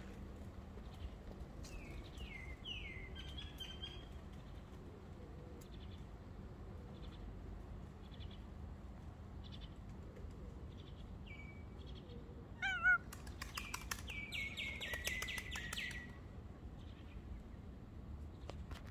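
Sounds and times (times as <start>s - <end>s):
cat meow: 12.6s - 13.1s.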